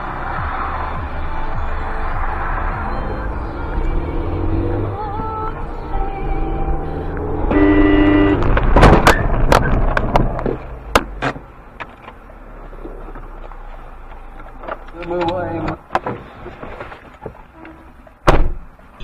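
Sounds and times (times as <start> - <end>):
road rumble: 0.0 - 19.0
car horn blaring: 5.9 - 8.6.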